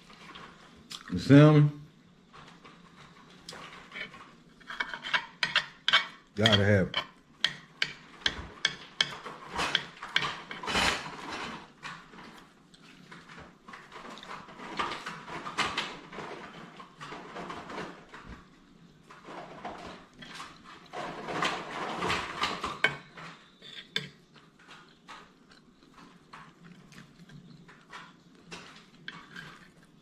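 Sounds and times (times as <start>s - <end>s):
cutlery scraping a plate: 3.6s - 11.7s, 19.8s - 29.9s
cutlery clinking on a plate: 3.9s - 11.5s.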